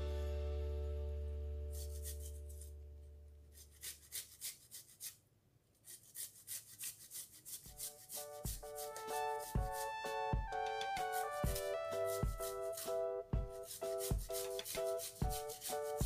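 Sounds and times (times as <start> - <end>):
background music: 0.0 - 2.4, 7.8 - 16.0
ginger grated on metal grater: 1.7 - 2.7, 3.5 - 5.2, 5.8 - 10.0, 10.8 - 16.0.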